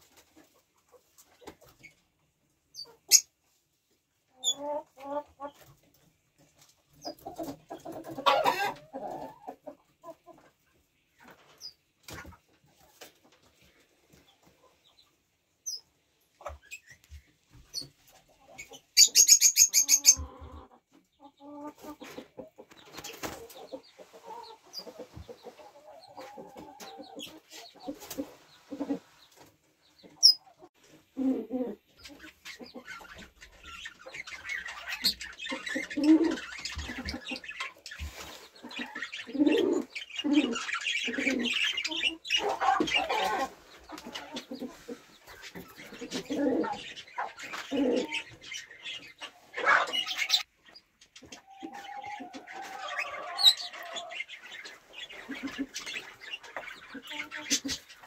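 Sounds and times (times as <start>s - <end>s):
hens clucking: 0.0s - 58.0s
budgerigars chattering: 32.0s - 50.5s.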